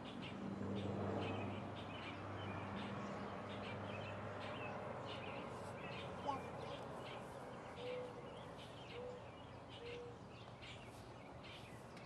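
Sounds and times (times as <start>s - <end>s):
birds chirping: 0.0s - 12.0s.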